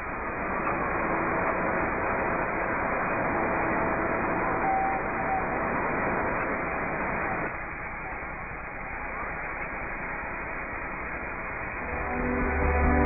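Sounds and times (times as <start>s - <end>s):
steady machinery noise: 0.0s - 9.4s, 10.1s - 13.0s
faint brief tone: 4.5s - 5.6s.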